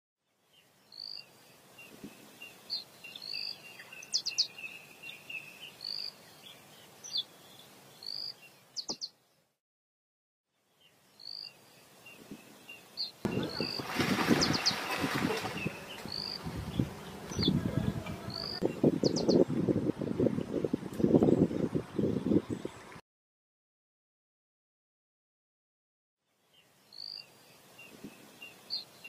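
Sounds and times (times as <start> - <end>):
birds whistling and trilling: 12.1 - 19.5
water splashing: 13.3 - 18.6.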